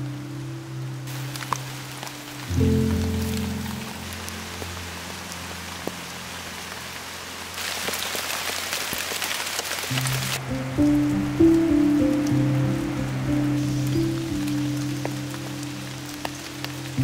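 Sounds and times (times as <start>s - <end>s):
soft music: 0.0s - 7.6s, 9.9s - 17.0s
steady rain falling: 0.0s - 17.0s.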